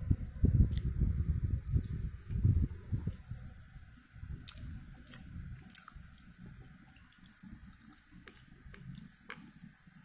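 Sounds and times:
low rumbling handling noise: 0.0s - 7.0s.

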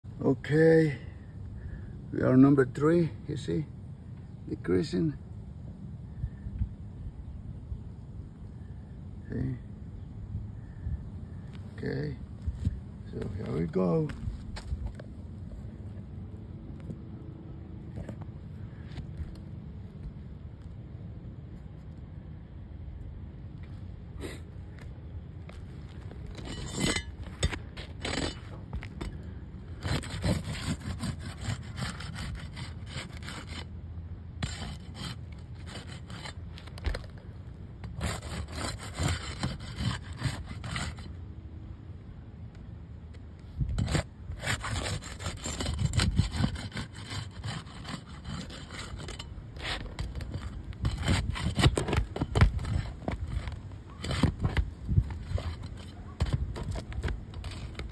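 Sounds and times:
roof shingles scraping: 29.8s - 33.7s, 37.9s - 41.1s, 43.8s - 57.9s.

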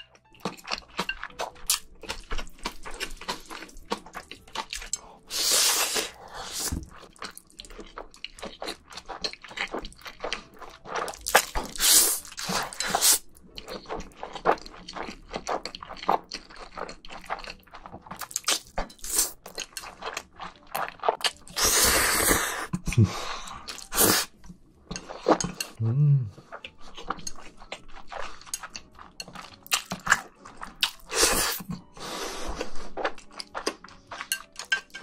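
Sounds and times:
wet chewing and lip-smacking: 0.3s - 23.0s, 26.4s - 31.9s, 32.5s - 35.0s
slurping noodles: 5.2s - 6.9s, 10.9s - 13.2s, 21.5s - 24.4s, 31.0s - 33.0s.

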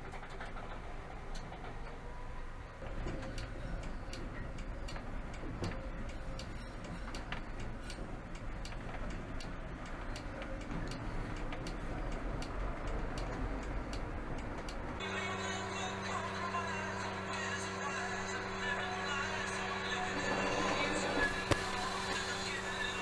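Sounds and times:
tram rumbling along street: 0.0s - 23.0s
rapid regular ticking: 3.0s - 15.1s
music: 15.0s - 23.0s.

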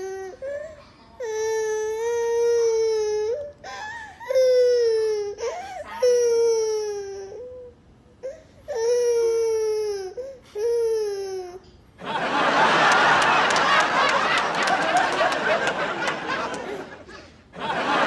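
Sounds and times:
toddler crying: 0.0s - 3.6s, 4.2s - 7.7s.

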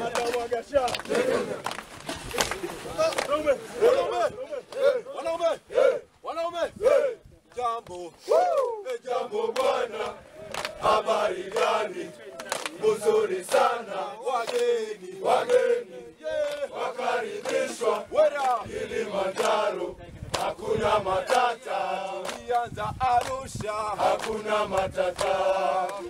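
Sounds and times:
men singing a chant: 0.0s - 1.6s, 8.0s - 26.0s
hand clapping: 0.0s - 3.4s, 8.6s - 11.8s, 12.4s - 12.8s, 14.4s - 14.8s, 15.4s - 15.7s, 16.4s - 16.7s, 17.4s - 18.6s, 19.3s - 19.7s, 20.3s - 20.6s, 21.2s - 26.0s.

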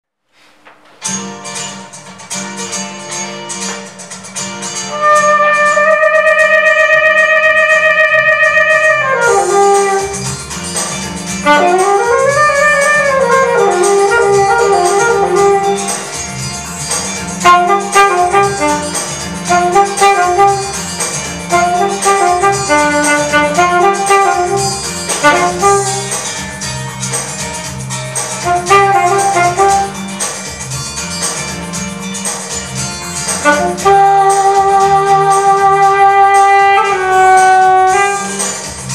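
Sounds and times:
backing track with steady beat: 0.4s - 38.9s
alto saxophone playing: 4.8s - 16.4s, 17.2s - 30.3s, 33.0s - 38.9s.

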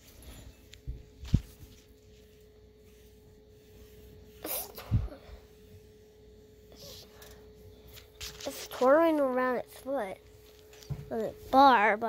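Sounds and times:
faint steady hum: 0.0s - 12.0s
person sneezing: 4.4s - 5.2s.

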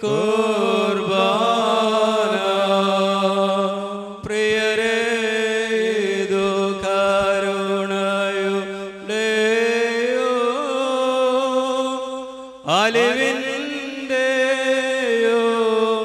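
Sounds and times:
voices singing liturgical chant: 0.0s - 7.5s.

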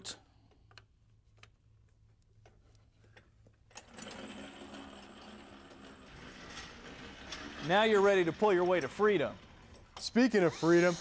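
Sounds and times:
electric winch motor running: 3.8s - 11.0s.

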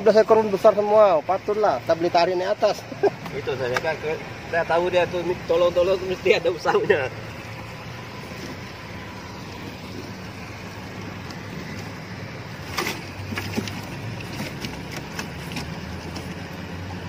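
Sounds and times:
low hum and hiss: 0.0s - 17.0s
clicks and rustles of wet net: 12.6s - 16.6s.

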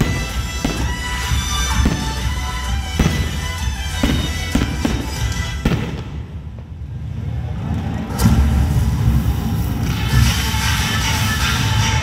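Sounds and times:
music with heavy low beat: 0.0s - 6.3s
fireworks bursting: 0.0s - 7.1s.

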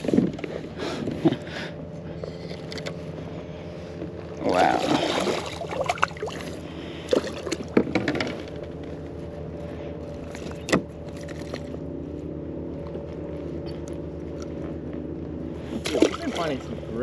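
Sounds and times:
steady low hum: 0.0s - 17.0s
fish splashing at the surface: 4.5s - 7.6s, 15.8s - 16.6s.

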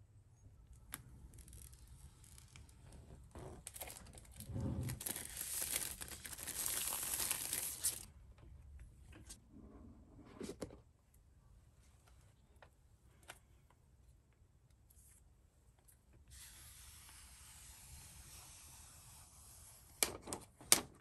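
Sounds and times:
plastic seal crinkling and tearing: 3.5s - 8.1s.

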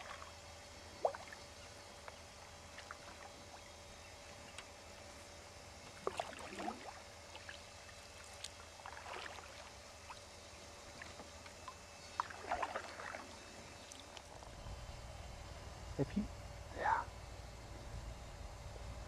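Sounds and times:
paddle splashes and dripping: 5.8s - 14.4s.

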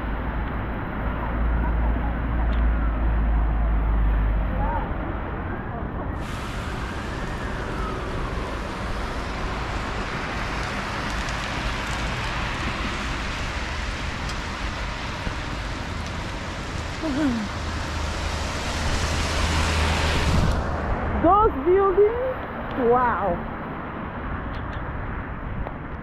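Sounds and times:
traffic on wet street: 0.0s - 26.0s
rain on wet pavement: 6.2s - 24.7s.

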